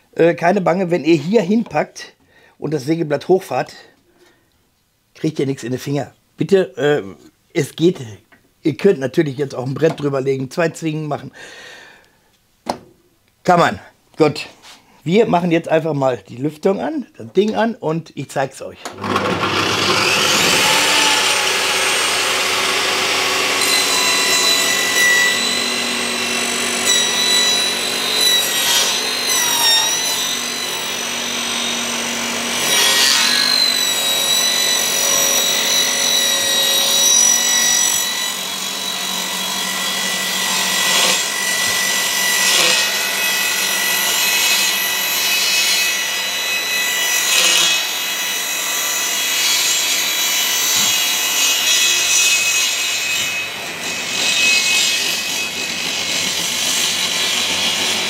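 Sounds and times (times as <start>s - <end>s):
table saw high whine: 18.9s - 58.0s.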